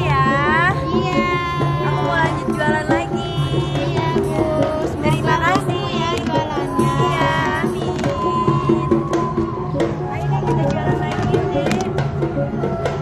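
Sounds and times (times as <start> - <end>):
background music with drum beat: 0.0 - 13.0.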